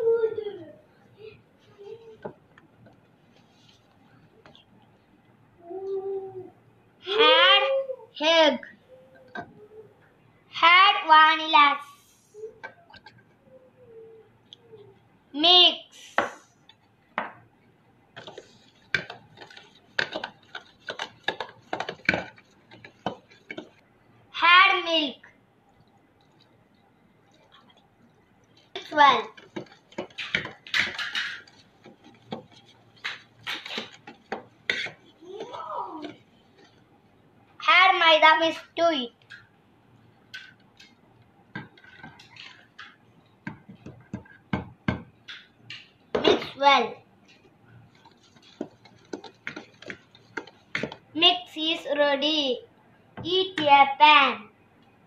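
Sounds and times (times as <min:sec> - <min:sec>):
utensil scraping a metal bowl: 0:29.3 - 0:36.8.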